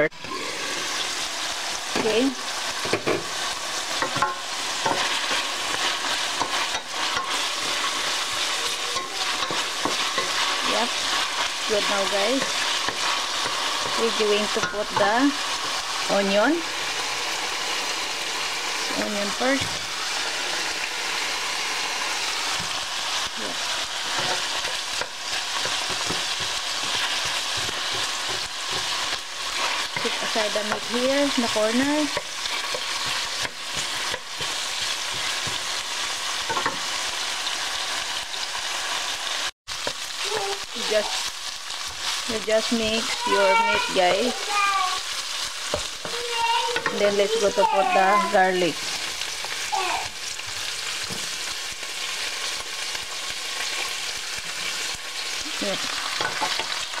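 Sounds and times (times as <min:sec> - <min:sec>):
meat sizzling in hot oil: 0:00.0 - 0:57.0
wooden spatula scraping pan: 0:01.9 - 0:35.9.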